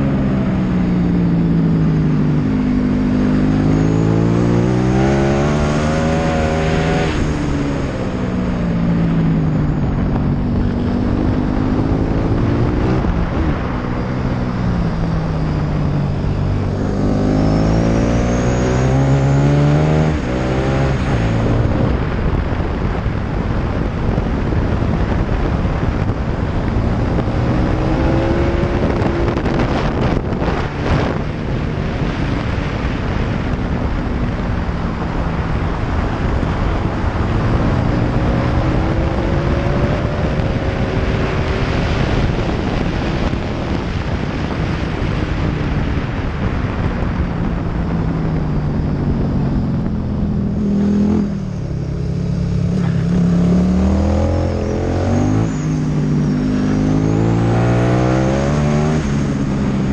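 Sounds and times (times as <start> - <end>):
motorcycle engine accelerating: 0.0 - 59.9
wind rush on microphone: 0.0 - 59.9.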